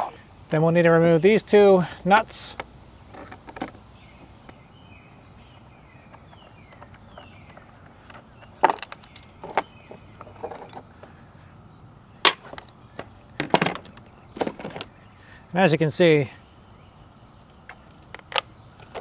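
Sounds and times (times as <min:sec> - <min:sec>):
metallic clinks and rattles: 0:08.1 - 0:09.6.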